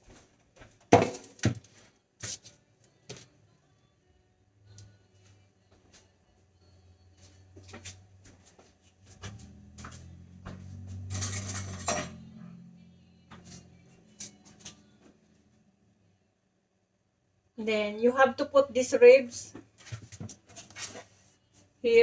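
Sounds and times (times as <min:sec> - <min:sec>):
low hum: 0:09.0 - 0:17.5
dishes clinking and clattering: 0:11.1 - 0:12.4.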